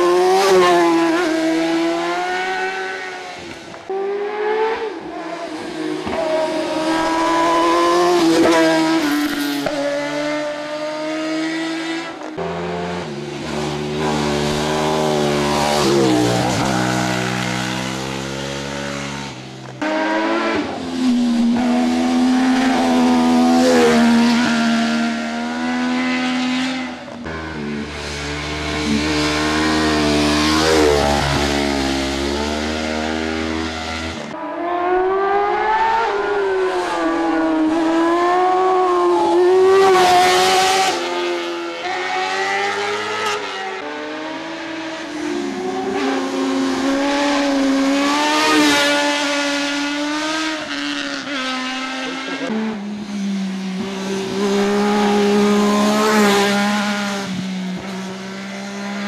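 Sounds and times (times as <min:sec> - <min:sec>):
motorcycle engines revving: 0:00.0 - 0:59.0.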